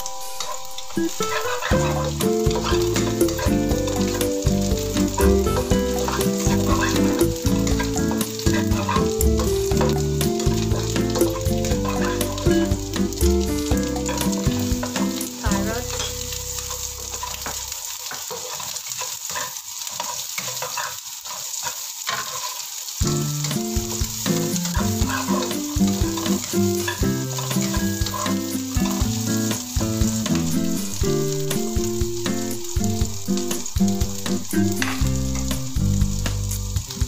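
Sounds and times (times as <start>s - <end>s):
food sizzling in hot oil: 0.0s - 37.0s
spatula scraping a pan: 15.9s - 22.7s, 23.4s - 29.0s.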